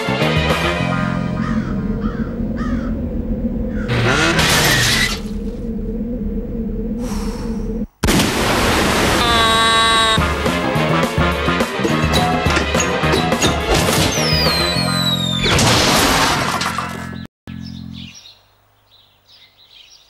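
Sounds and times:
steady low rumble: 0.5s - 9.1s
loud noisy burst: 1.0s - 10.4s.

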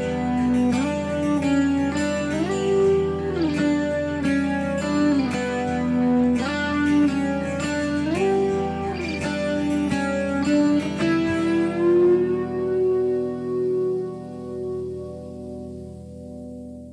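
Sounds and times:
slide guitar music: 0.0s - 16.9s.

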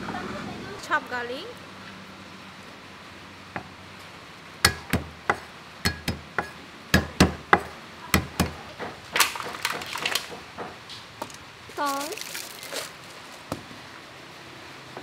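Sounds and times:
cleaver chopping on wooden board: 4.6s - 10.8s.

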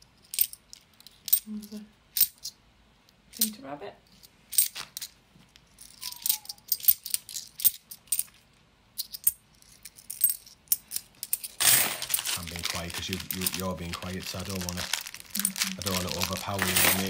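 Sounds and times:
coins clinking: 5.8s - 8.3s, 9.0s - 17.0s
plastic bag crinkling: 11.6s - 17.0s.

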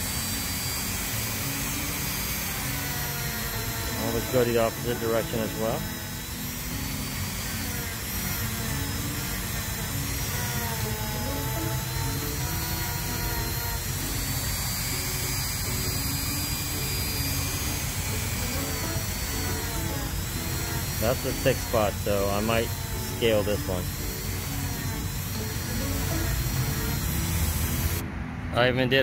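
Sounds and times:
rotary tool grinding rock: 0.0s - 28.0s.

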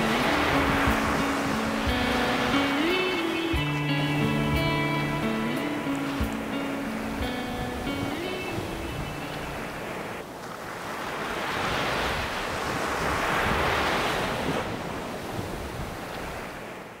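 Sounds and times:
music track: 0.0s - 9.8s
wind on microphone: 0.0s - 10.2s
sea waves on rocks: 0.0s - 16.9s.

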